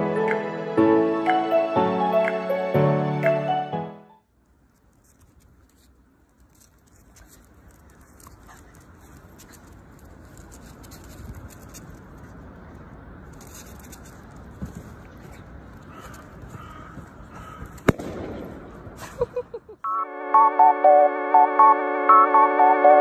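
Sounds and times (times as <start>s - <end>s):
outdoor background noise: 0.0s - 20.7s
dog claws scrabbling on paving: 4.6s - 18.1s.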